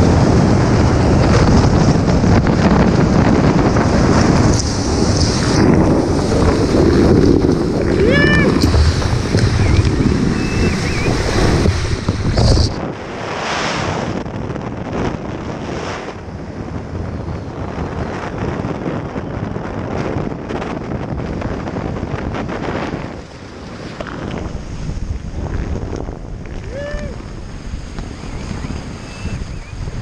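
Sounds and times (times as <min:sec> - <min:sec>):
water rushing: 0:00.0 - 0:13.8
wind buffeting microphone: 0:00.0 - 0:30.0.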